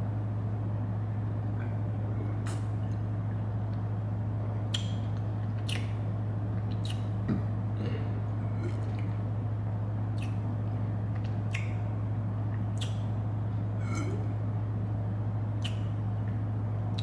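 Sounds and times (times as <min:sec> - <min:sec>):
steady low hum: 0:00.0 - 0:17.0
person sipping and swallowing: 0:07.8 - 0:09.2, 0:13.8 - 0:14.3.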